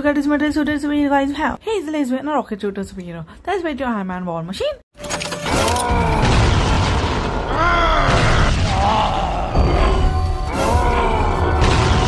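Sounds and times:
deep booming hits: 0:06.0 - 0:12.0
cartoon action music: 0:08.1 - 0:12.0.

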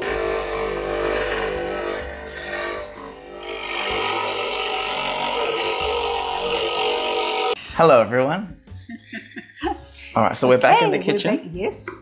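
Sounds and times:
electric coconut grater grinding: 0:00.0 - 0:07.6.

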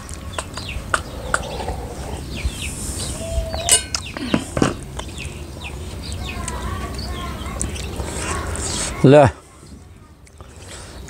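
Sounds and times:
faint bird chirps: 0:00.3 - 0:04.4
metal bowl clinking down: 0:03.7 - 0:04.0.

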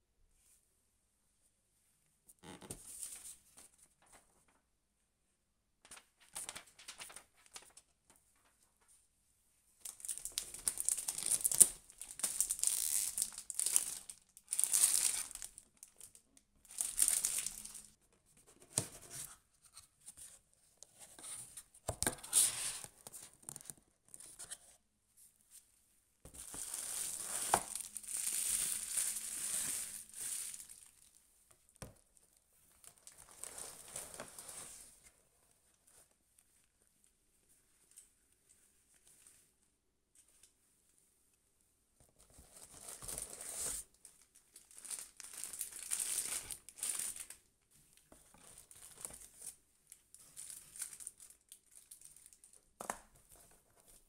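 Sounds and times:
packaging rustling and crinkling: 0:05.9 - 0:08.6, 0:09.8 - 0:18.0, 0:26.3 - 0:31.2, 0:32.7 - 0:35.1, 0:42.3 - 0:47.4, 0:48.2 - 0:52.6.

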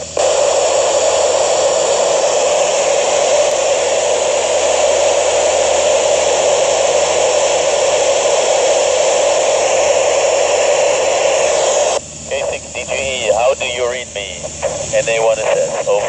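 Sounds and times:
radio static hiss: 0:00.0 - 0:16.0.

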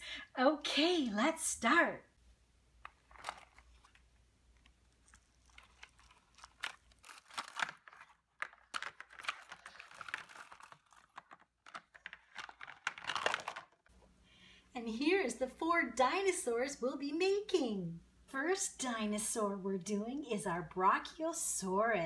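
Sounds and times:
mesh net bag rustling: 0:02.9 - 0:04.0, 0:05.0 - 0:13.8
plastic toys clicking and knocking: 0:05.6 - 0:13.8.

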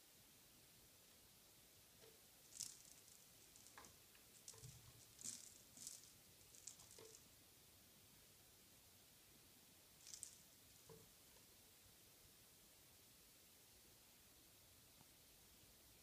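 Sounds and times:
cat claws scratching carpet: 0:02.4 - 0:07.3, 0:10.0 - 0:10.9.

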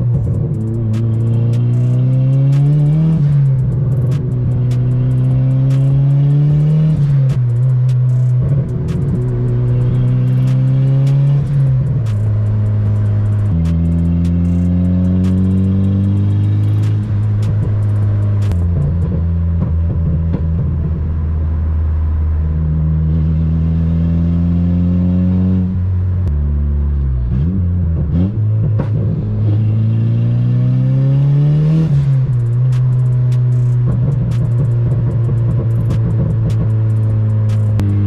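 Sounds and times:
exhaust crackles and pops: 0:00.0 - 0:21.7, 0:26.2 - 0:29.5, 0:31.5 - 0:38.0
car engine revving: 0:00.0 - 0:38.0.

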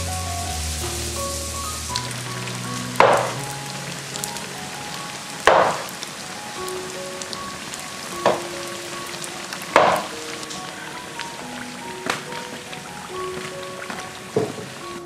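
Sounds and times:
dough sizzling in hot oil: 0:00.0 - 0:10.8
slow background music: 0:00.0 - 0:15.0.

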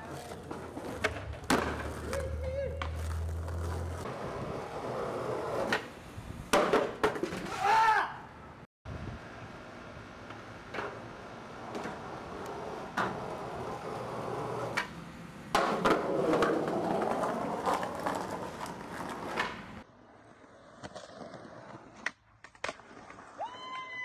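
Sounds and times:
skateboard clacking: 0:00.0 - 0:03.8
skateboard wheels rolling on concrete: 0:00.0 - 0:08.0, 0:08.9 - 0:24.0.

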